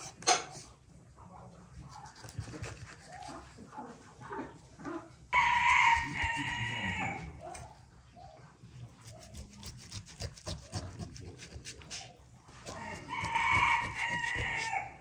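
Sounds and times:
rooster crowing: 5.4 - 7.4, 12.7 - 15.0
knife slicing raw meat: 5.4 - 7.8, 9.0 - 15.0.

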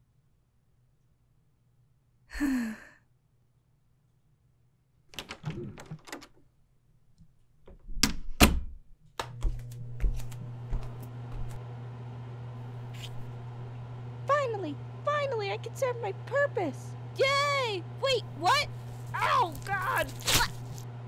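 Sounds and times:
steady low hum: 9.4 - 21.0.

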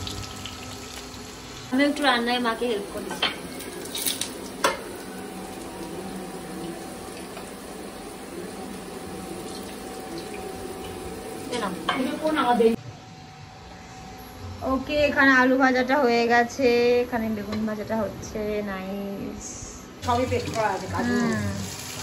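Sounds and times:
vegetables sizzling in oil: 0.0 - 12.8, 20.0 - 22.0
woman's voice: 1.7 - 3.3, 11.5 - 12.8, 14.6 - 21.6.

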